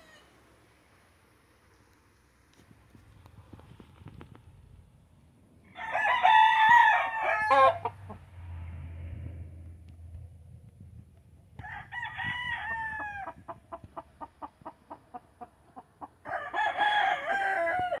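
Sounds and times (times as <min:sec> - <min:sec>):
rooster crowing: 0:00.0 - 0:00.3, 0:05.7 - 0:08.2, 0:11.6 - 0:13.4, 0:16.2 - 0:18.0.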